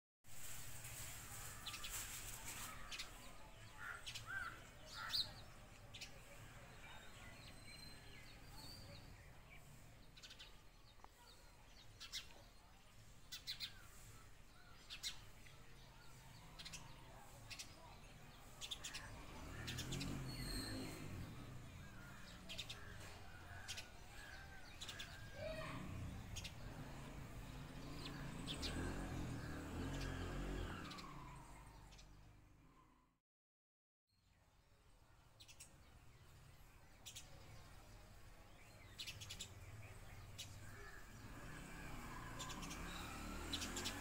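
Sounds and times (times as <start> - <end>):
sparrow chirping: 35.4 - 41.6.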